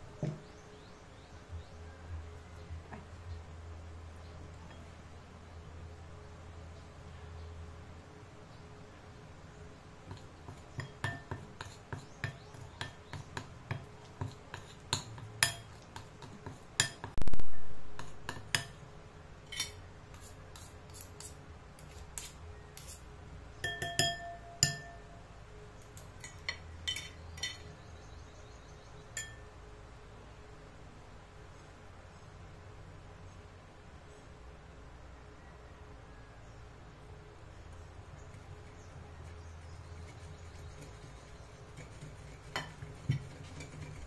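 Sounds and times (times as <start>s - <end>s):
cutlery clinking on glass bowl: 10.8s - 13.0s, 13.7s - 17.2s, 23.6s - 25.1s, 26.2s - 27.7s, 29.2s - 29.5s.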